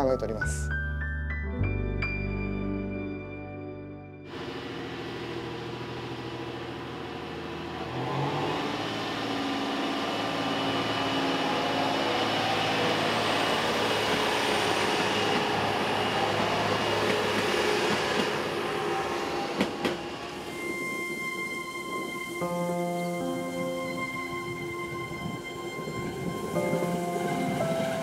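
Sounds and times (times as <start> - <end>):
railcar diesel engine: 4.2 - 28.0
wheels on rails: 5.2 - 22.4.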